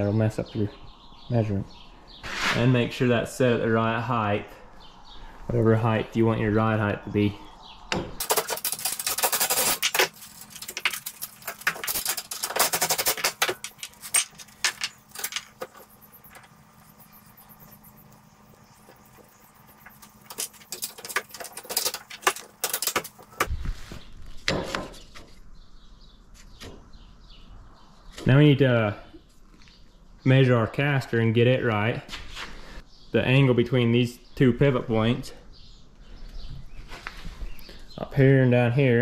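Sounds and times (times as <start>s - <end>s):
faint steady hum: 2.8s - 24.5s
metal parts and tools clinking: 8.2s - 17.9s, 19.0s - 23.4s.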